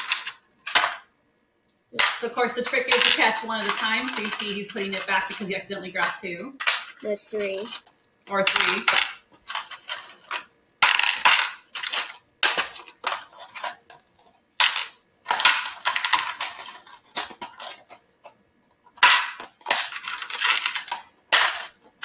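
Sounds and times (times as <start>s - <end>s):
coins clinking in plastic tubs: 0.0s - 1.1s, 2.0s - 14.0s, 14.6s - 22.0s.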